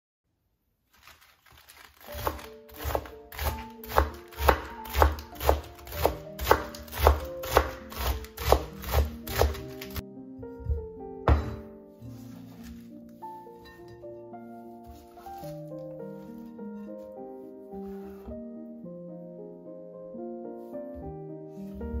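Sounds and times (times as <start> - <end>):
knife slicing lettuce on wooden board: 1.0 - 10.0
background music with held notes: 2.0 - 22.0.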